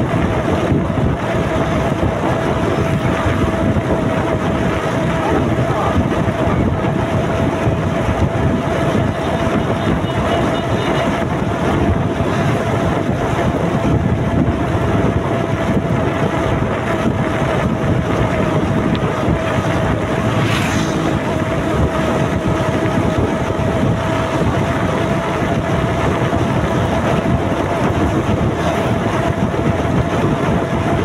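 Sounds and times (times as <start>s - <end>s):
motorcycle engine running: 0.0s - 31.0s
wind rushing over microphone: 0.0s - 31.0s
steady whine: 11.1s - 31.0s.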